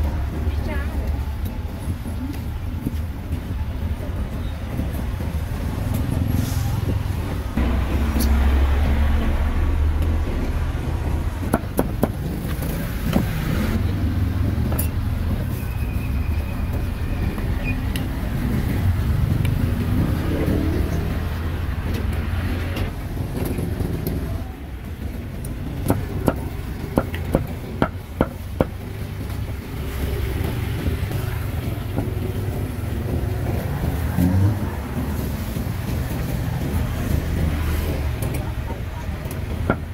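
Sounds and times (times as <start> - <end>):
low rumble of street traffic: 0.0 - 39.9
sharp knocks: 7.6 - 13.4.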